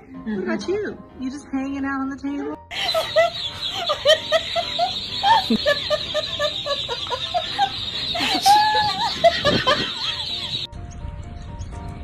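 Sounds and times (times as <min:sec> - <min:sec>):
ducklings peeping: 0:02.7 - 0:10.7.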